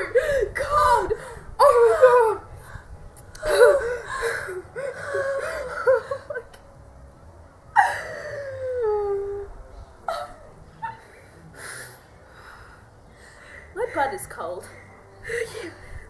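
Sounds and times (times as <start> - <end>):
young women squealing and laughing: 0.0 - 2.5, 3.4 - 6.6, 10.1 - 11.2
long descending cry: 7.8 - 11.1.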